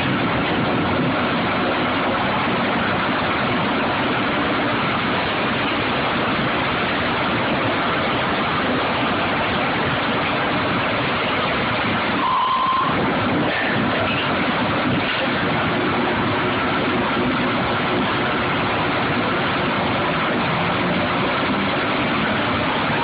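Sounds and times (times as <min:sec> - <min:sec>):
drilling rig machinery running: 0:00.0 - 0:23.0
short steady beep: 0:12.2 - 0:13.0.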